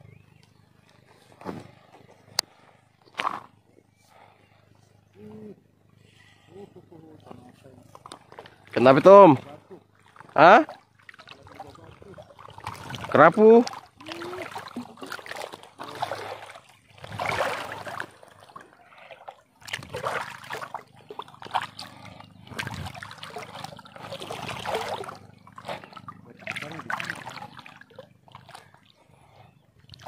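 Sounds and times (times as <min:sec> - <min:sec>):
seawater sloshing around wading legs: 0:07.3 - 0:30.0.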